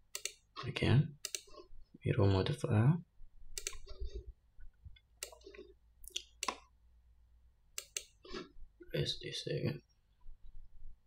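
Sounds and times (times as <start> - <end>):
computer mouse clicks: 0.1 - 0.4, 1.2 - 1.6, 3.6 - 4.0, 5.0 - 6.7, 7.8 - 8.2.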